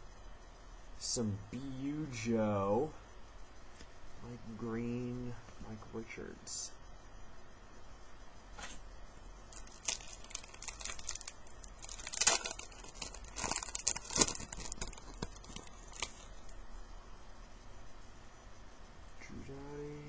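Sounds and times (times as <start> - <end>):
wrapper tearing and crinkling: 9.5 - 16.4.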